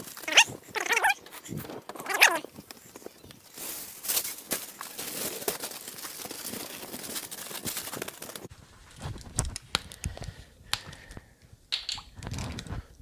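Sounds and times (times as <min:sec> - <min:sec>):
aluminium foil crinkling: 0:00.0 - 0:08.5
handling clicks and knocks: 0:11.7 - 0:12.6.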